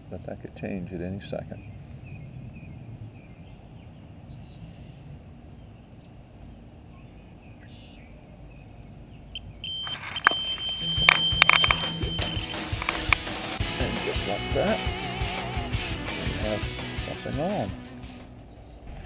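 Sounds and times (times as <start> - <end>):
low wind rumble on microphone: 1.2 - 9.3
faint bird chirps: 1.5 - 12.6
high-pitched electronic alarm tone: 9.4 - 13.2.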